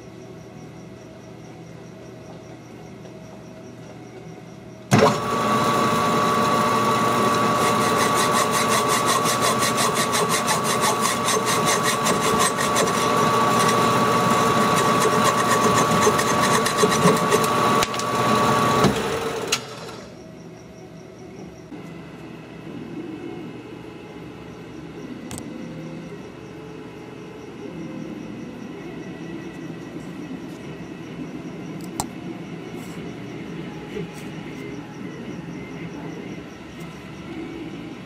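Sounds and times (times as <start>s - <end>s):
metal lathe whine: 4.9s - 20.3s
hacksaw rasping on metal: 7.4s - 17.6s.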